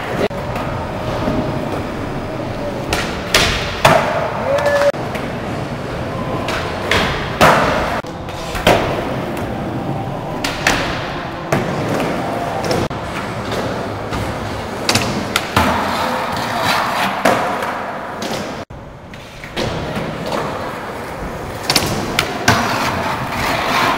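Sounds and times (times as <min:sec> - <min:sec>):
skateboard wheels rolling: 0:00.0 - 0:23.9
skateboard scraping along ledge: 0:22.5 - 0:23.9.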